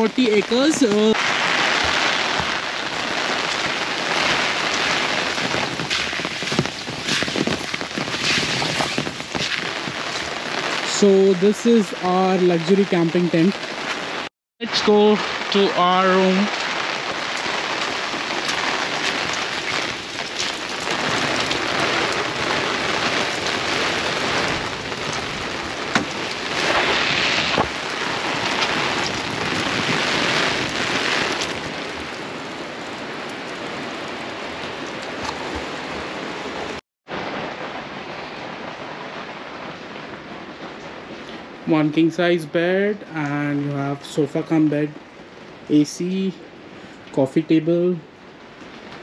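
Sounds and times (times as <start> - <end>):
raindrops striking an umbrella: 0.0 - 47.3
heavy rain falling: 0.0 - 49.0.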